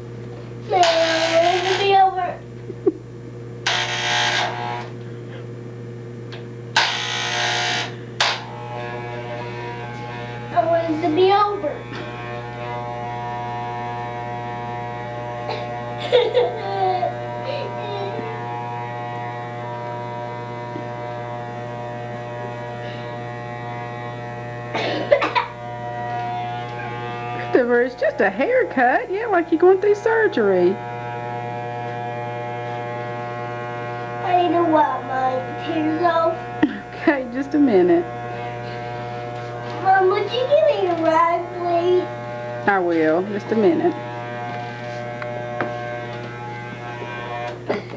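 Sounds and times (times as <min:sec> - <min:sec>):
electric hair clippers buzzing: 0:00.0 - 0:47.9.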